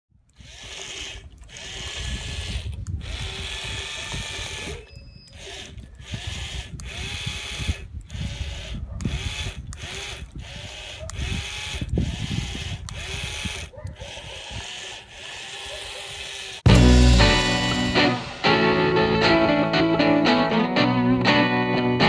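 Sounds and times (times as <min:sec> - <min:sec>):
small motor whirring through gears: 0:00.2 - 0:18.0.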